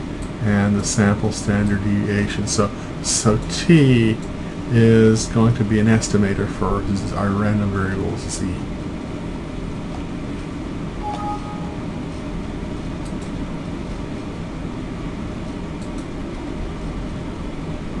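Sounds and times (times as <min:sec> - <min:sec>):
faint two-note tone: 0:11.0 - 0:12.2.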